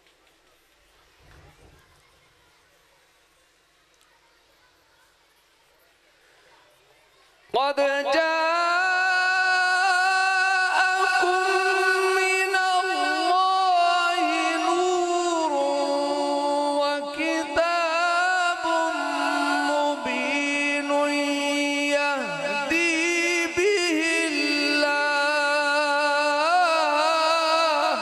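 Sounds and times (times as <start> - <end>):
man chanting melodic recitation: 7.6 - 28.0.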